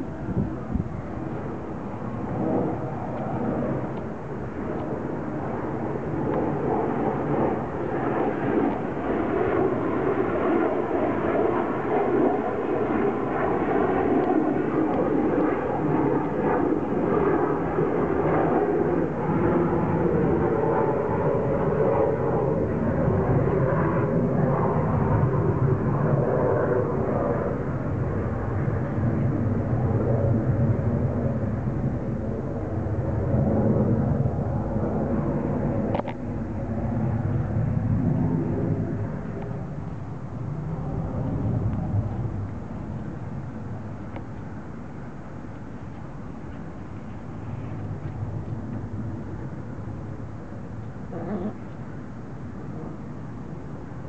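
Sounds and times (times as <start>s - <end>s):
engine drone: 45.2s - 53.8s.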